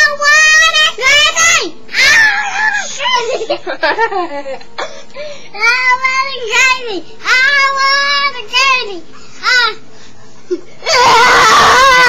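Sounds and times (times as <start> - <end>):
child sing-song voice: 0.0 - 3.4, 5.5 - 9.8
child shrieking: 10.8 - 12.0.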